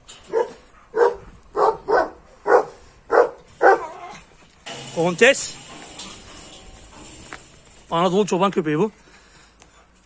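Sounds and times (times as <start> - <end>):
dog barking: 0.3 - 3.9.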